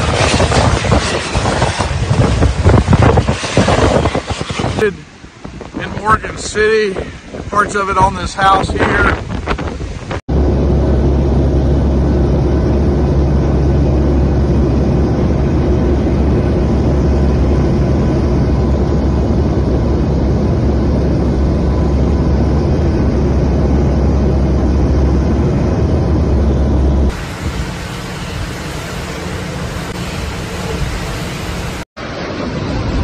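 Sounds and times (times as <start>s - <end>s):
airplane engines droning in cabin: 10.1s - 33.0s.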